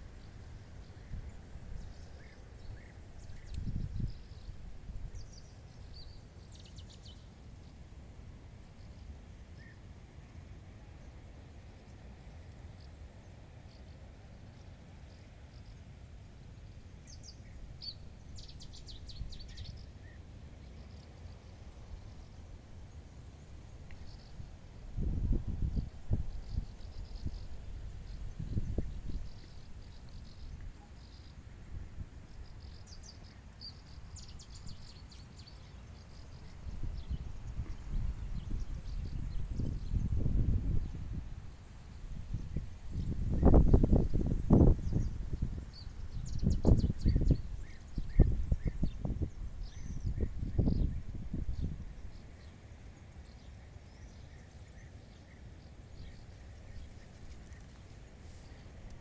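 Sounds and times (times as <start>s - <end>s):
low wind rumble: 0.0s - 59.0s
faint bird chirps: 41.9s - 58.7s.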